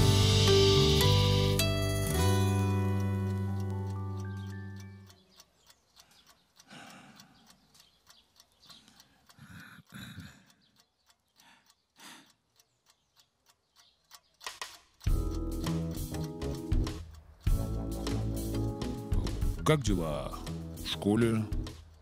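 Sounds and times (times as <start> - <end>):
music cue: 0.0 - 5.3, 15.0 - 21.9
wall clock ticking: 0.0 - 22.0.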